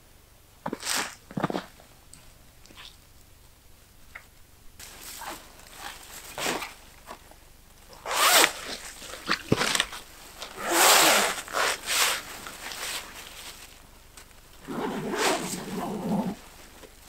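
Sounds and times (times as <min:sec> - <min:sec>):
tent zip being pulled: 0:00.7 - 0:01.7, 0:07.9 - 0:13.8, 0:14.6 - 0:16.5.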